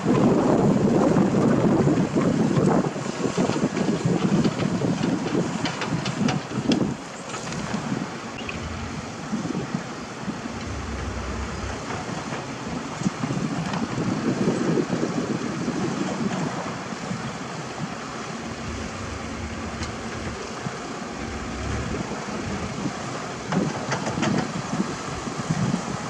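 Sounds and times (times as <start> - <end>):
wind buffeting microphone: 0.0 - 26.0
diesel truck engine running: 7.3 - 12.9, 18.0 - 23.6.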